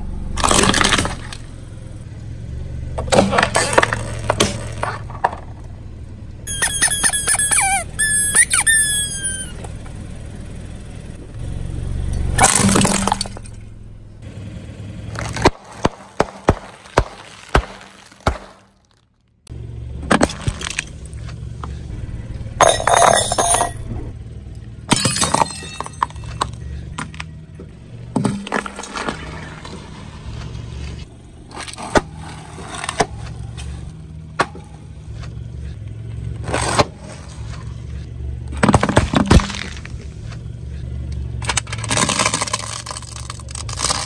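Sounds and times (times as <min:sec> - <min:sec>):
objects crunching under tyre: 0:00.3 - 0:01.6, 0:03.0 - 0:05.8, 0:15.1 - 0:19.4, 0:20.0 - 0:21.8, 0:24.9 - 0:44.0
high squeaks falling in pitch: 0:06.5 - 0:09.7
snack bags popping: 0:41.7 - 0:44.0.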